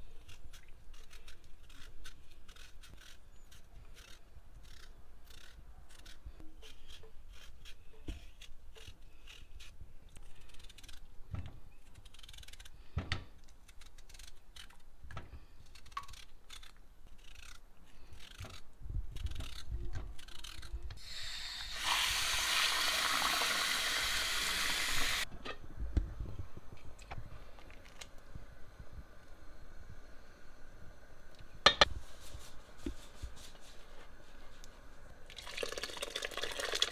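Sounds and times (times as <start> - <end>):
peeler scraping potato skin: 0.0 - 22.9
running water: 21.5 - 25.2.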